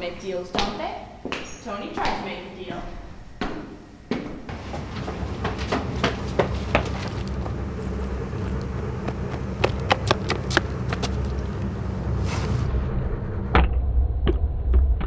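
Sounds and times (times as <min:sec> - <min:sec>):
steady low hum: 0:00.0 - 0:15.0
running footsteps on concrete: 0:00.5 - 0:11.8.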